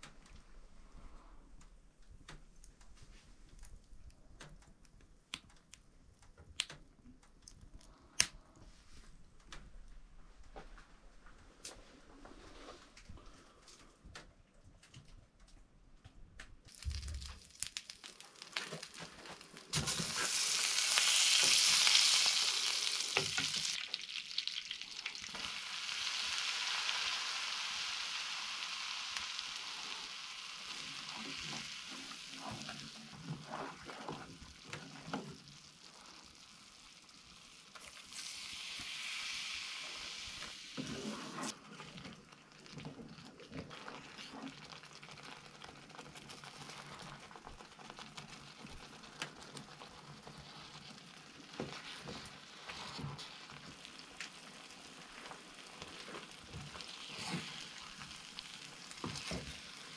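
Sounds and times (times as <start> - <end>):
eggs sizzling in a pan: 16.7 - 59.9
wooden spoon scraping a pan: 32.2 - 35.2, 40.8 - 42.0, 51.6 - 53.8.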